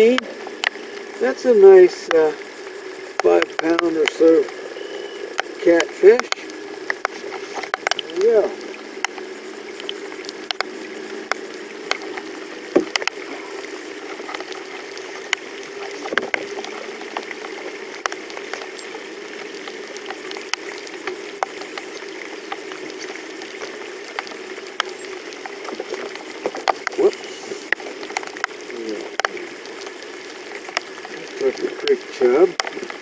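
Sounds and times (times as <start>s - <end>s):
steady hum: 0.0s - 33.0s
water lapping against boat hull: 0.0s - 33.0s
light ticks: 0.1s - 1.2s, 3.1s - 8.2s, 9.0s - 13.3s, 14.0s - 33.0s.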